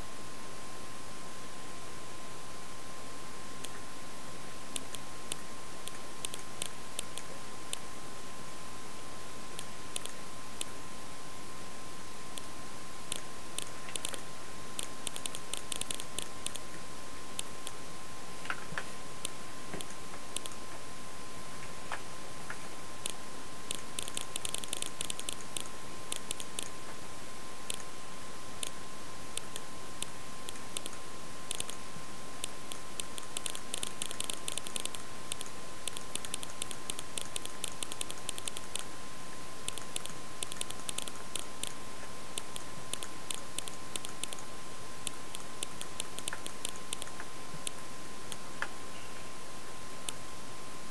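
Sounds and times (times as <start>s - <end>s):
faint high whine: 0.0s - 50.9s
steady hiss: 0.0s - 50.9s
computer keyboard typing: 4.8s - 7.8s, 9.6s - 10.7s, 13.1s - 14.2s, 14.8s - 16.7s, 19.2s - 20.6s, 23.0s - 26.8s, 27.7s - 27.9s, 29.4s - 31.8s, 32.4s - 38.9s, 39.7s - 41.8s, 42.4s - 48.4s.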